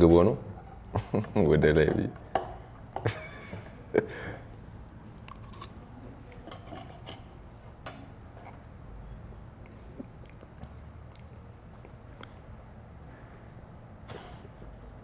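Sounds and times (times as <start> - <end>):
person chewing food: 8.2 - 12.6.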